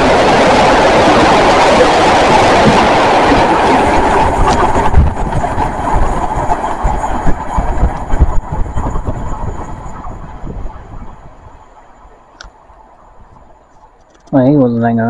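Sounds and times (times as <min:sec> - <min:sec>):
low knocks from train wheels: 0:00.0 - 0:11.0
freight train rumbling past: 0:00.0 - 0:14.0.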